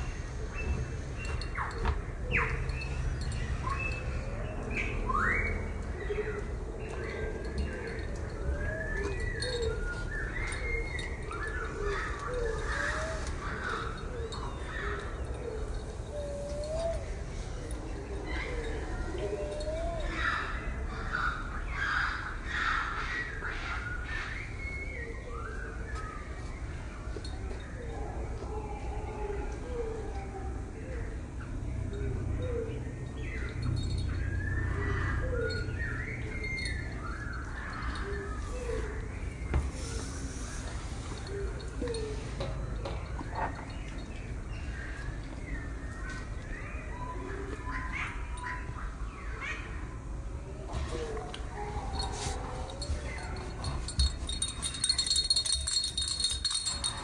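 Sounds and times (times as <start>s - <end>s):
birds cooing: 0.0s - 26.0s, 27.2s - 49.9s, 50.5s - 57.0s
birds chirping: 0.0s - 28.0s, 30.9s - 50.0s, 51.3s - 57.0s
birds calling low notes: 30.9s - 57.0s
high gliding bird calls: 33.1s - 42.4s, 51.8s - 57.0s.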